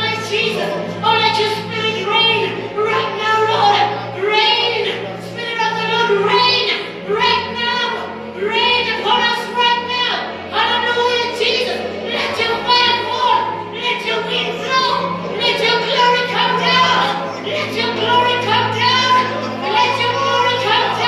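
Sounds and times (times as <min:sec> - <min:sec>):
held keyboard chords: 0:00.0 - 0:21.0.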